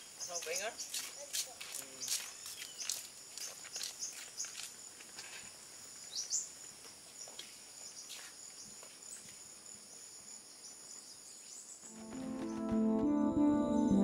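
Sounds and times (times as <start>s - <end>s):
insects droning: 0.0s - 12.9s
rising insect chirp: 0.0s - 14.0s
music: 11.9s - 14.0s.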